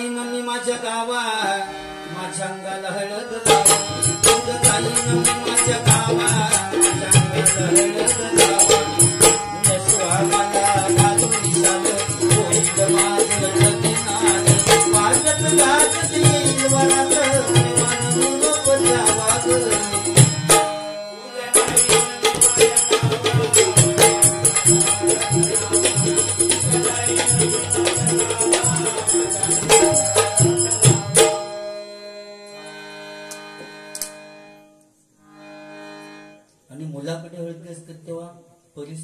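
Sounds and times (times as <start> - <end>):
harmonium: 0.0 - 37.9
jingling percussion: 3.5 - 33.7.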